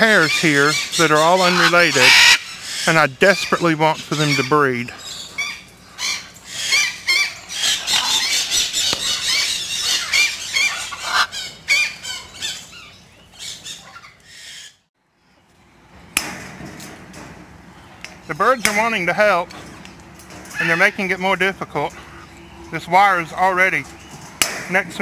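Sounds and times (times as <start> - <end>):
macaws squealing and squawking: 0.0 - 14.8, 20.4 - 24.2.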